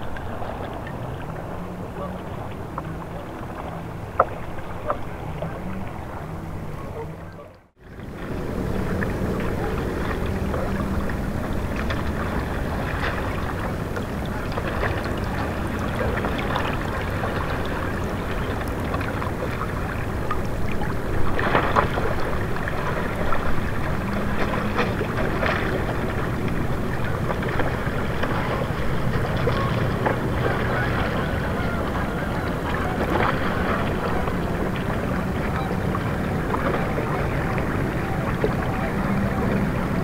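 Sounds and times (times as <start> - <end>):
river water flowing around rocks: 0.0 - 40.0
water splashes: 0.0 - 40.0.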